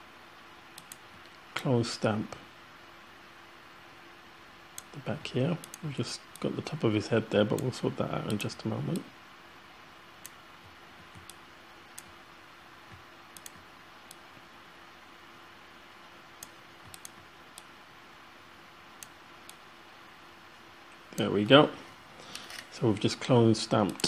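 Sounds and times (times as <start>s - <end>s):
low hiss and hum: 0.0s - 24.0s
computer mouse clicking: 0.7s - 1.4s, 5.6s - 6.5s, 7.5s - 9.1s, 10.2s - 12.2s, 12.9s - 14.5s, 16.4s - 17.7s, 19.0s - 19.6s.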